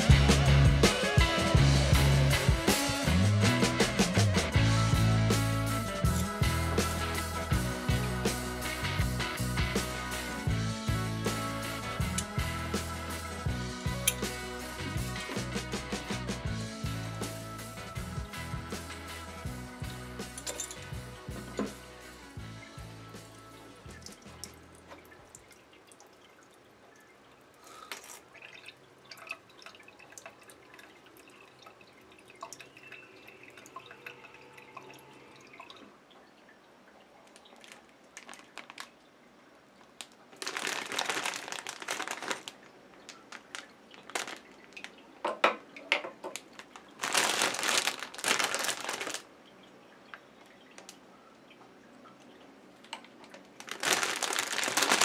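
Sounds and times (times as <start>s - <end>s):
plastic bag crinkling: 37.4s - 39.0s, 40.0s - 45.0s, 46.4s - 49.3s, 53.6s - 55.0s.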